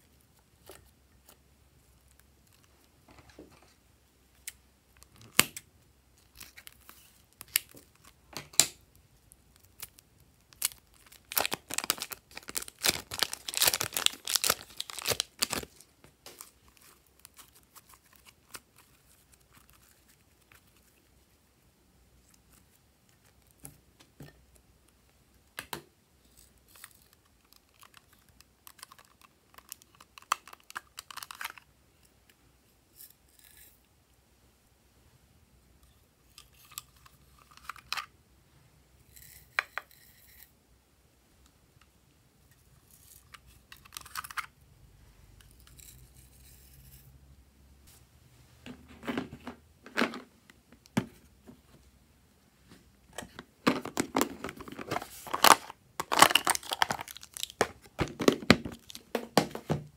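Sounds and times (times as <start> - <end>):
plastic bag crinkling: 10.5 - 20.2, 53.9 - 59.6.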